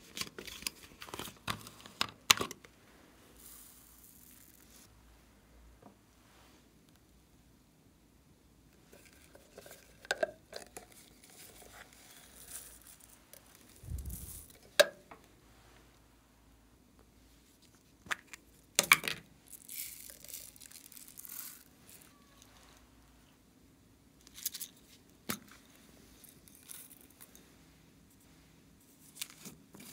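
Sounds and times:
beads pattering into glass tray: 19.5s - 22.2s.

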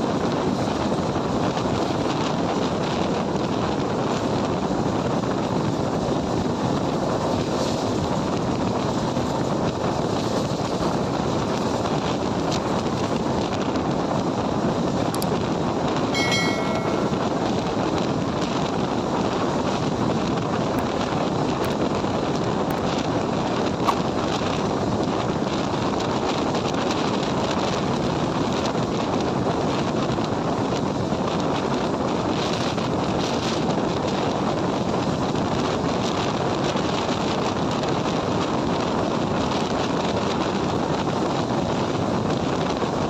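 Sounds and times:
wind buffeting microphone: 0.0s - 16.2s, 17.0s - 43.0s
brief high-pitched tone: 16.1s - 17.7s.

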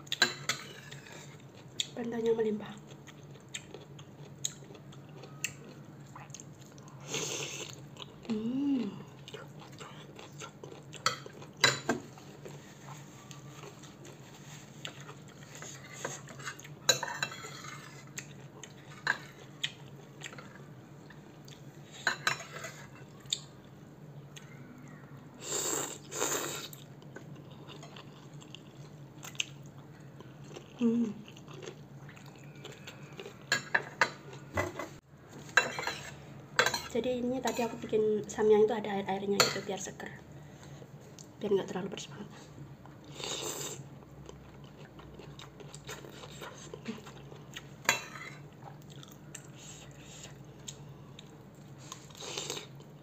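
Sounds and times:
chewing: 2.7s - 8.4s, 9.0s - 21.8s, 25.9s - 34.5s, 42.8s - 53.0s.

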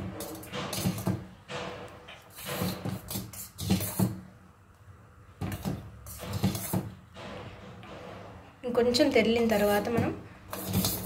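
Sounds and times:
spoon scraping steel pan: 2.1s - 4.2s, 5.4s - 6.9s, 9.4s - 11.0s.

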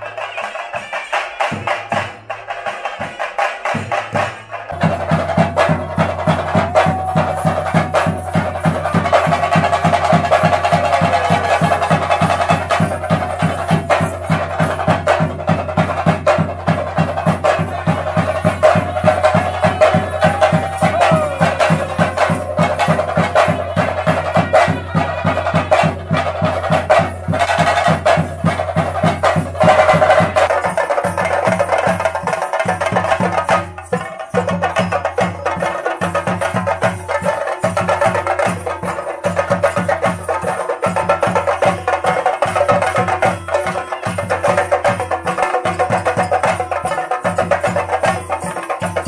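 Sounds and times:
drums beaten in fast rhythm: 0.0s - 49.0s
held melodic line: 4.7s - 15.7s.

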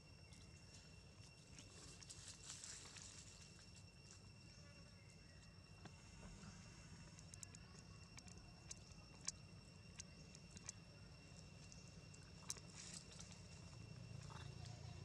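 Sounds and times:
small clicks and crackles: 7.0s - 15.0s.

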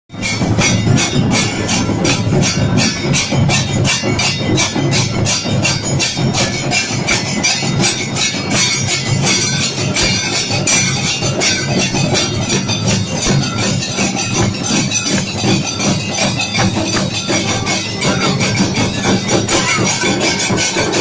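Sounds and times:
large drums beaten with sticks: 0.1s - 21.0s
brass cymbals clashing: 0.2s - 21.0s.

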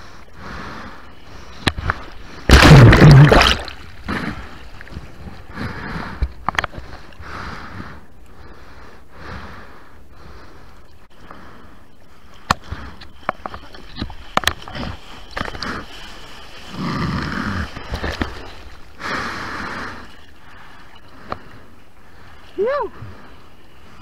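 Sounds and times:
seawater splashing and slapping: 1.6s - 5.5s, 12.4s - 20.4s.

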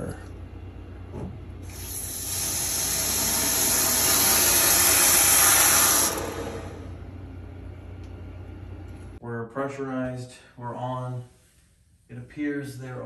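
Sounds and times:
water rushing through valve: 1.6s - 7.0s.

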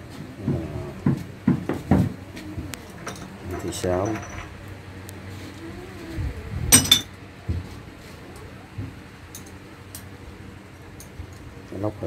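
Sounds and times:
metal tools clinking on engine block: 2.8s - 4.6s, 6.8s - 7.1s, 9.3s - 9.6s.

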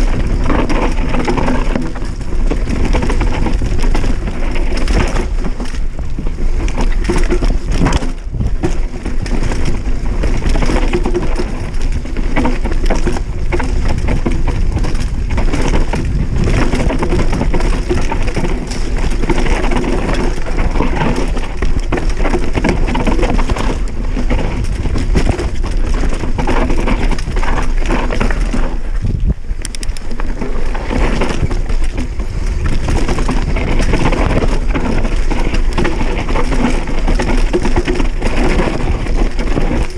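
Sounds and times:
bike rattling over rocks: 0.0s - 39.9s
tyres crunching over stones: 0.0s - 39.9s.

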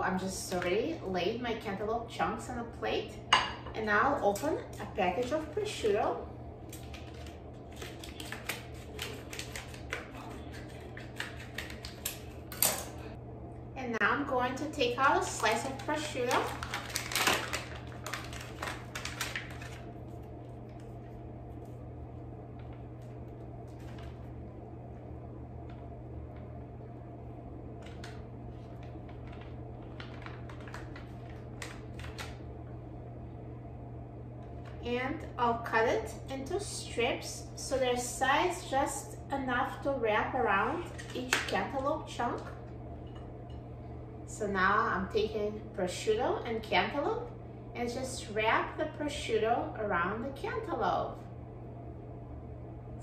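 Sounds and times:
low hum: 0.0s - 53.0s
plastic package crinkling: 6.7s - 12.4s, 15.3s - 21.0s, 27.8s - 32.4s.

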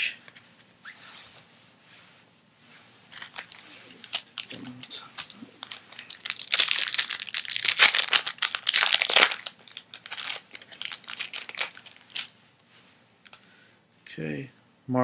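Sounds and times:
foil wrapper tearing and crinkling: 3.1s - 12.3s.

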